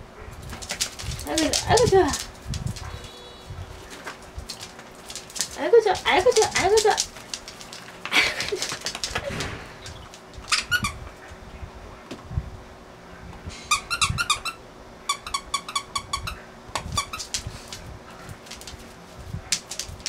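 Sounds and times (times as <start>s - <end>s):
dog toy squeaking: 10.4s - 11.0s, 13.7s - 17.4s.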